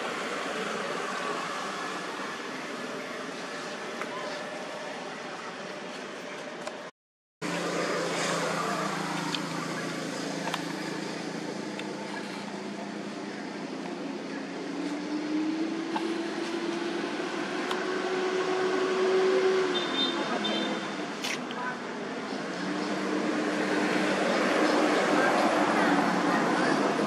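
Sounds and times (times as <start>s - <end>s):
engine drone: 7.4s - 20.0s.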